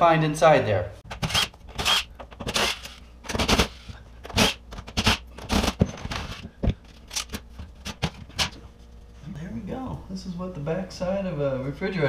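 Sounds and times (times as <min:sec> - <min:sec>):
impact driver rattling bursts: 0:01.2 - 0:06.4.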